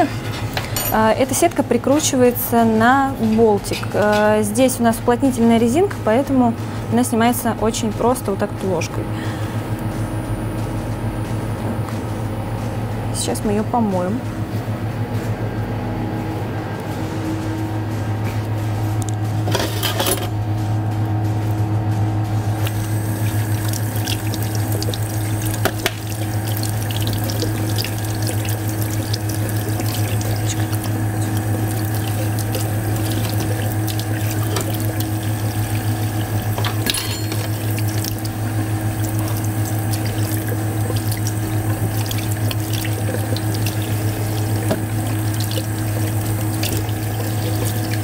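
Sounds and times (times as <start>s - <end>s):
steady low hum: 0.0s - 48.0s
tap water running into sink: 22.6s - 48.0s.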